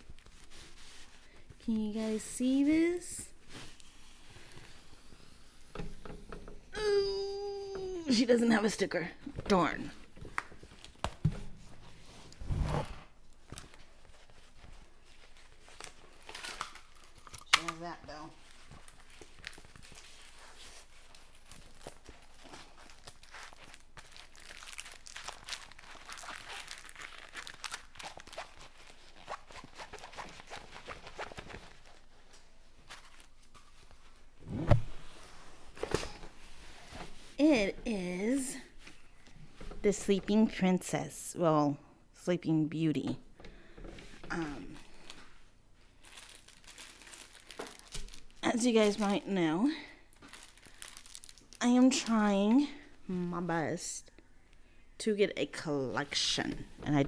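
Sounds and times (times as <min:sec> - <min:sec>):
packaging rustling and crinkling: 0:10.1 - 0:34.3, 0:44.7 - 0:49.3, 0:50.0 - 0:52.1.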